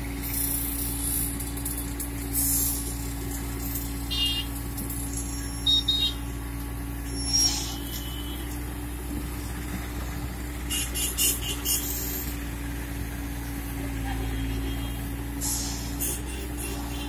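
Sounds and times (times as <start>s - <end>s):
diesel engine running: 0.0s - 17.0s.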